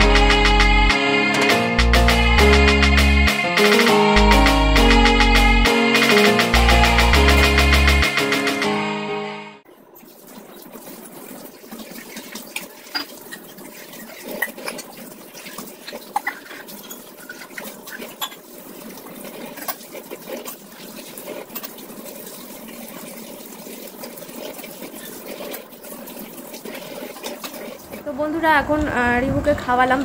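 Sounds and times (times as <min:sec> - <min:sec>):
running tap water: 0:09.7 - 0:28.2
pots and utensils clinking: 0:12.0 - 0:23.0.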